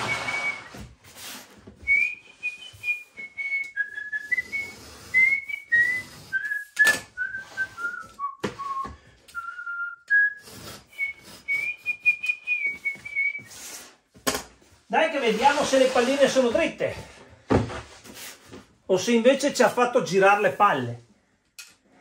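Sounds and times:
man whistling a tune: 0.0 - 0.8, 1.8 - 13.5.

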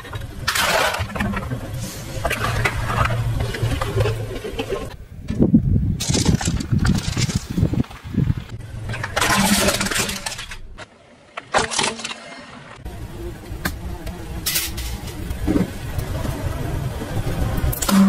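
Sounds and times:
objects crackling and crunching: 0.0 - 5.0, 6.0 - 12.8
car engine and tyres rumbling: 0.0 - 11.5, 12.5 - 18.0.

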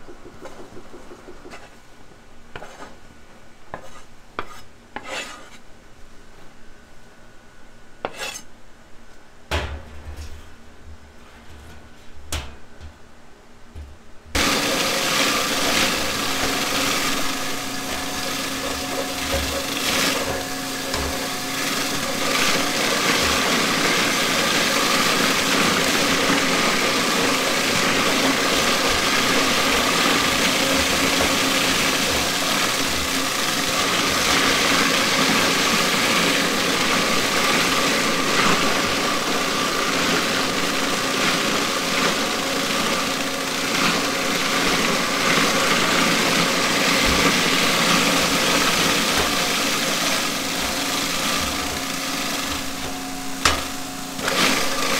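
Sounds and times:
mincing machine motor hum: 14.3 - 40.6
kitchen clatter: 14.4 - 24.1.

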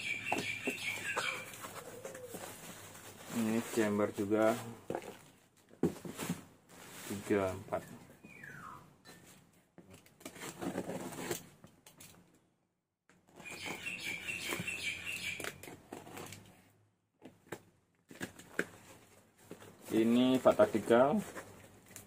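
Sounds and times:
cardboard and bubble wrap rustling: 0.3 - 7.8, 9.8 - 11.6, 17.2 - 22.0.

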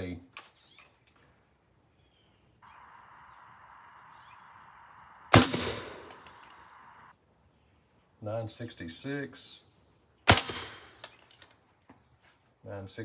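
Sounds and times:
faint steady hiss: 0.0 - 9.2
suppressed gunshot: 5.2 - 6.7, 10.3 - 10.9.

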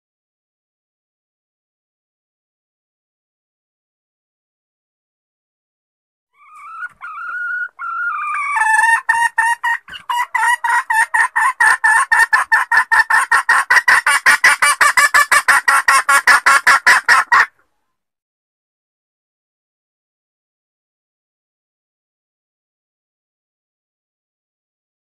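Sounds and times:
hen clucking: 6.4 - 17.6.

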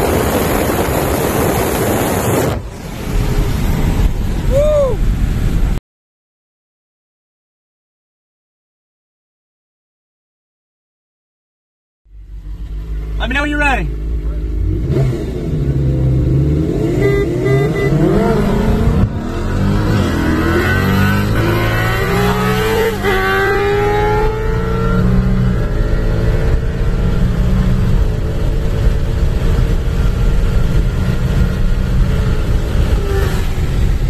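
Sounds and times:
car engine accelerating: 12.1 - 34.0.

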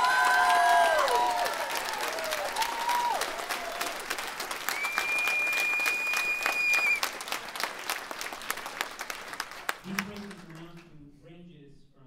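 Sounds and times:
crowd applauding: 0.0 - 10.9
falling whistle: 4.7 - 7.0
long high whistle: 4.7 - 7.0.

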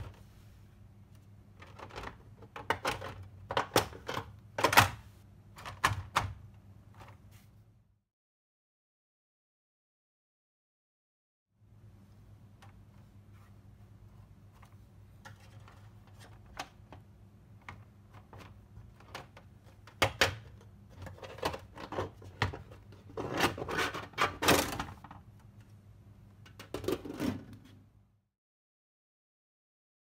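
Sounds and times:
faint steady hum: 0.0 - 8.0, 11.6 - 28.2.

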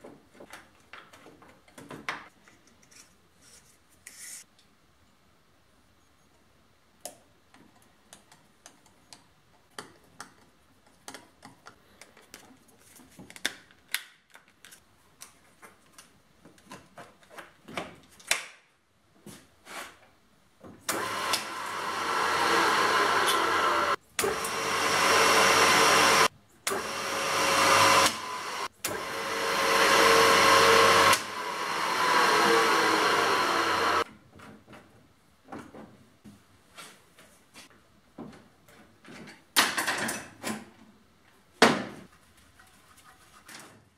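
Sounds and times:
electric motor whining: 20.9 - 34.0.

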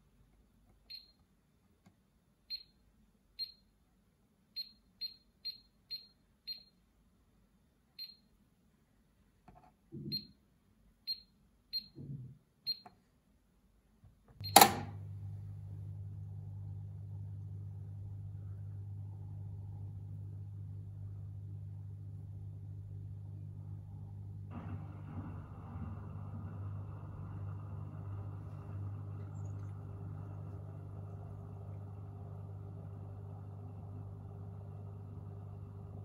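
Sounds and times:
washing machine humming: 14.4 - 36.0.

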